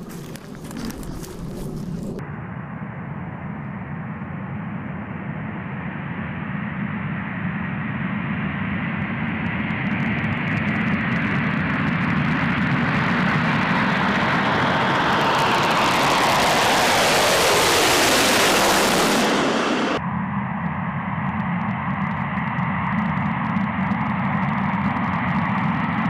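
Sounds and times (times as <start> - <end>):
jet engines at takeoff power: 0.0 - 26.0
jet noise crackle: 0.0 - 26.0.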